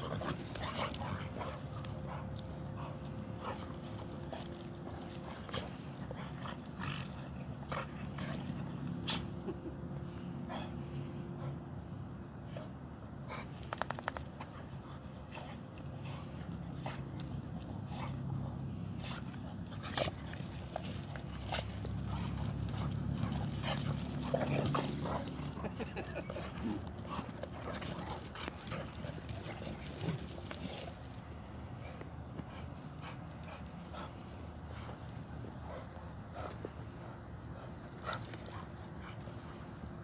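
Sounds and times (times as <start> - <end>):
dog panting: 14.4 - 39.8.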